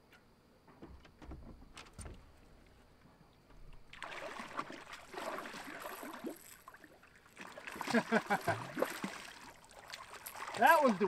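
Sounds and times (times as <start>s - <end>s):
water splashing: 3.6s - 11.0s.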